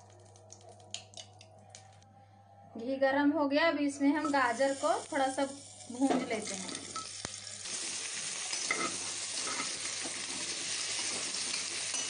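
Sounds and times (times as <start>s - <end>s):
carrots sizzling in hot fat: 4.2s - 12.0s.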